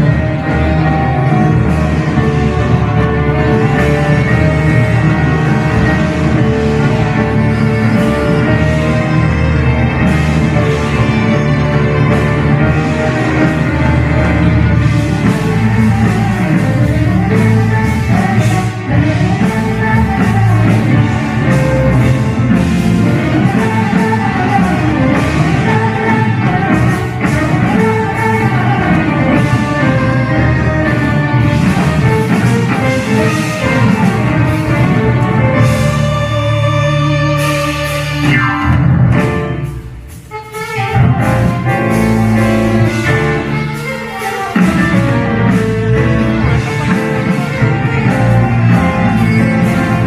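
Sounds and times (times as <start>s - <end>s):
bass guitar: 0.0s - 50.0s
electric keyboard: 0.0s - 50.0s
live band music: 0.0s - 50.0s.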